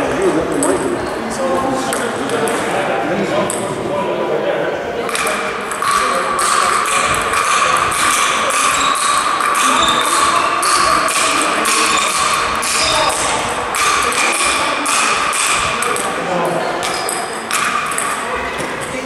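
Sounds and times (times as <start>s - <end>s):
table tennis ball clicks: 5.1s - 16.2s, 16.8s - 19.0s.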